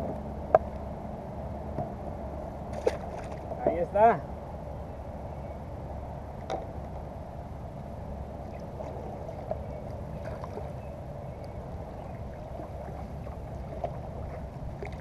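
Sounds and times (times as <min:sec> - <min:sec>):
steady low rumble: 0:00.0 - 0:15.0
water lapping against kayak: 0:07.8 - 0:15.0
paddle strokes: 0:12.0 - 0:15.0.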